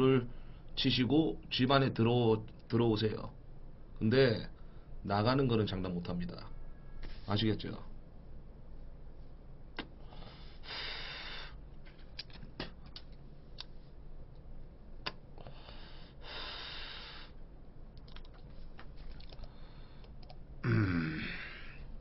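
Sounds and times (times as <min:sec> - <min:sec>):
man exhaling smoke: 0:10.0 - 0:11.6
short vocal sound: 0:20.6 - 0:21.9.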